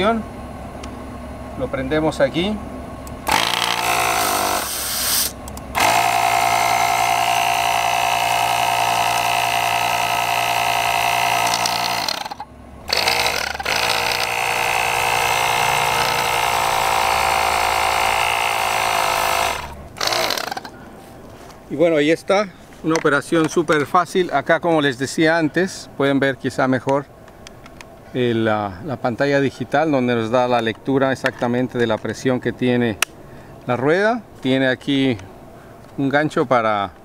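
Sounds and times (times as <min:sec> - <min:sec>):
small air compressor running: 0:03.2 - 0:21.1.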